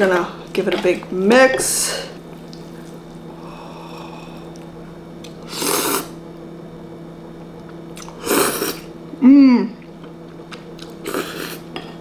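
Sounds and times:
steady low hum: 0.0 - 12.0
person slurping noodles: 5.5 - 6.2, 8.2 - 8.9, 11.0 - 11.6.

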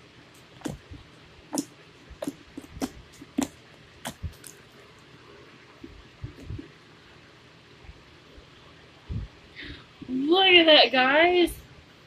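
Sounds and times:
slime squelching: 0.4 - 5.2.

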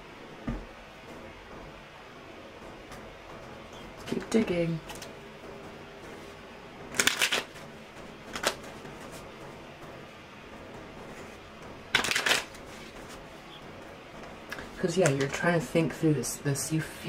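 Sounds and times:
cards being shuffled: 6.9 - 7.6, 8.3 - 9.2, 11.9 - 13.2.

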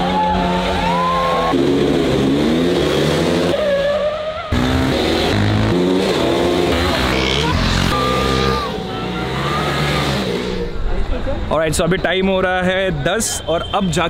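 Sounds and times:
motorcycle engines revving hard: 0.0 - 3.6, 4.5 - 10.7.

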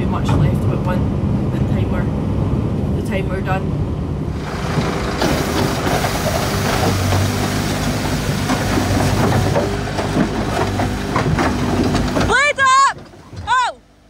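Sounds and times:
lorry engine hum: 0.0 - 14.0
road noise: 0.0 - 14.0
clatters and rattles from truck bed: 0.1 - 0.8, 4.4 - 13.6.

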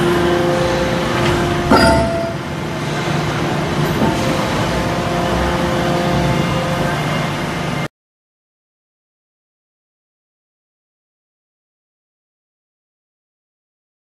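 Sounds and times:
forging press machinery hum: 0.0 - 7.9.

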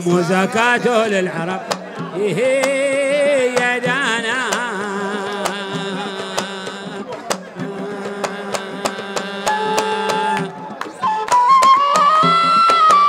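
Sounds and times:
drum beats: 0.0 - 13.0
hand claps: 1.7 - 13.0.

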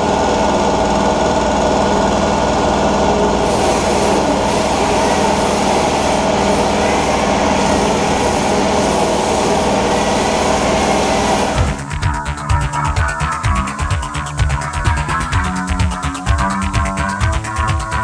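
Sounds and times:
electric sander motor whine: 0.0 - 11.9
sanding pad hiss: 3.4 - 11.8.

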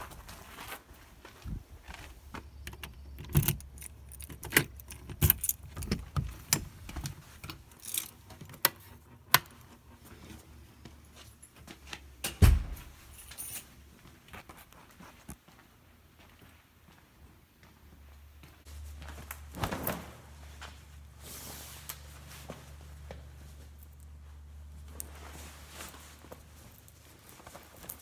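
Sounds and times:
sharp metallic clinks and knocks: 2.6 - 6.2, 7.6 - 8.4.

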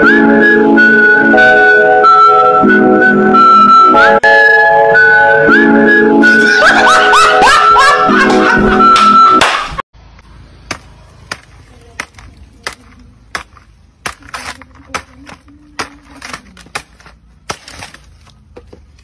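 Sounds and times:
machete chopping stalk: 10.6 - 18.2.

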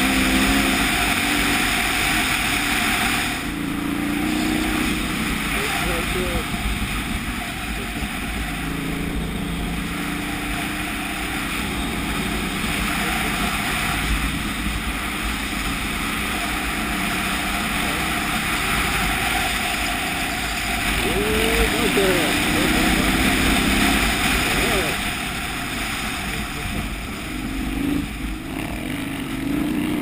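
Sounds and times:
motorcycle engine running: 0.0 - 30.0
wind rushing over microphone: 0.0 - 30.0.

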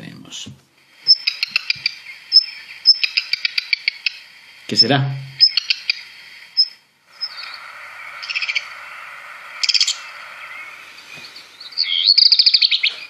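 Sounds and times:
bird song with high notes: 1.1 - 13.0.

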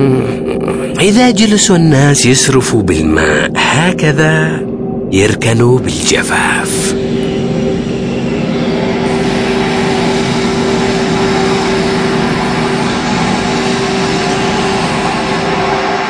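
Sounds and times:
water pump droning: 6.9 - 16.0.

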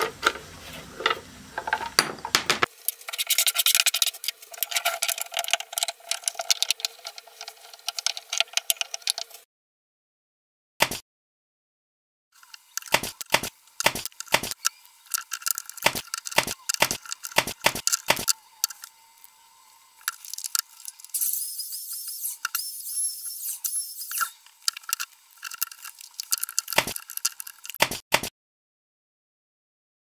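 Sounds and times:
knocks and clicks of wooden boards: 1.6 - 2.7, 12.9 - 14.6, 15.8 - 18.3
high hiss with squeaks: 20.7 - 24.5.

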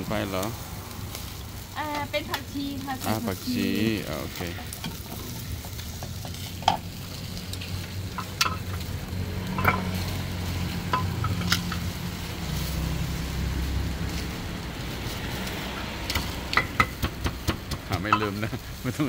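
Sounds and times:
meat sizzling on a grill: 0.0 - 19.0
utensils and pots clinking: 3.0 - 12.2, 16.0 - 19.0.

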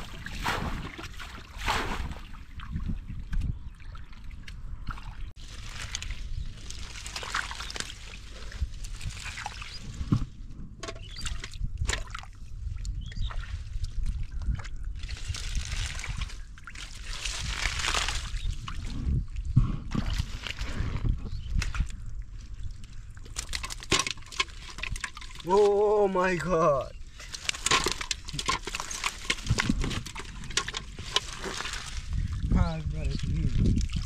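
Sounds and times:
splashing in muddy water: 0.0 - 10.2, 11.0 - 19.2, 19.9 - 34.0.

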